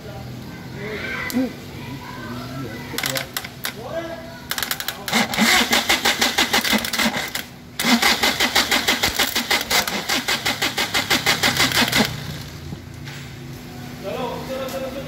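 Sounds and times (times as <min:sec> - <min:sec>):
engine cranking on starter motor: 0:04.5 - 0:12.8.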